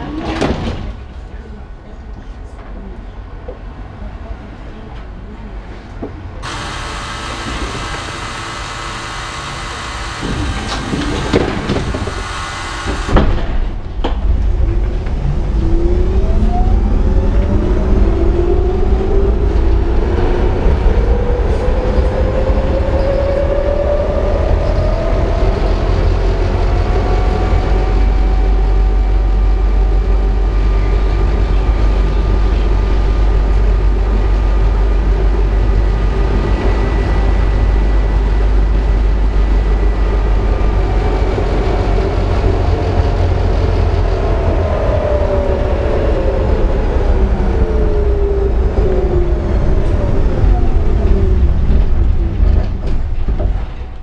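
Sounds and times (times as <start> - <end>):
low rumble of wheels on rails: 0.0 - 54.0
loud air hiss: 6.4 - 10.7
tram motors whining: 6.4 - 54.0.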